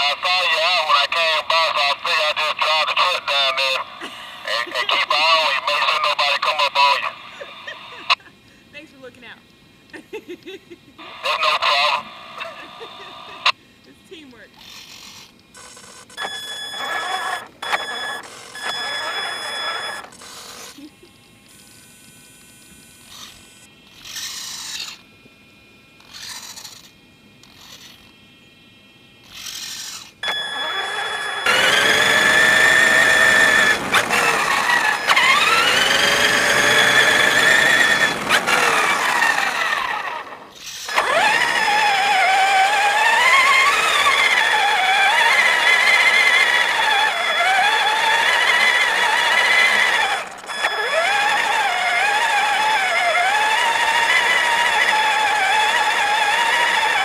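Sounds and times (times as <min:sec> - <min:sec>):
toy truck electric motor whining: 0:11.0 - 0:13.5, 0:14.6 - 0:25.1, 0:26.0 - 0:28.1, 0:29.2 - 0:57.0.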